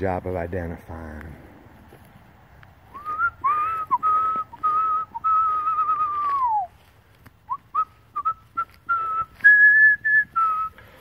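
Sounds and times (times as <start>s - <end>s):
person whistling: 2.9s - 6.8s, 7.5s - 11.0s.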